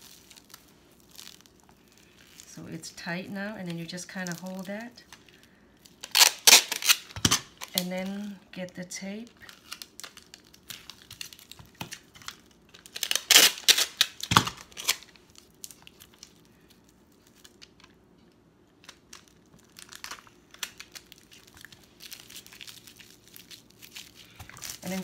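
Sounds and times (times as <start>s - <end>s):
plastic wrap crinkling: 0.0s - 25.0s
packing tape ripping off dispenser: 6.0s - 7.9s, 9.4s - 16.3s.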